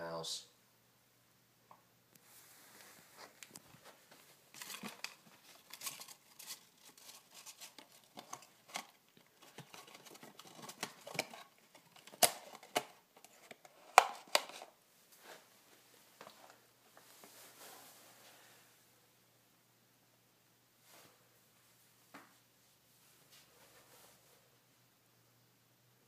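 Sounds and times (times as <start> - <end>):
cardboard crinkling and rustling: 2.7 - 15.5.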